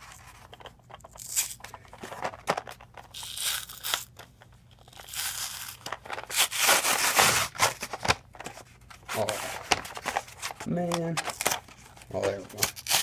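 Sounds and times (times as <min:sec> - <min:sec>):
plastic pack tearing and crinkling: 0:03.0 - 0:04.2, 0:04.8 - 0:08.2, 0:11.2 - 0:13.0.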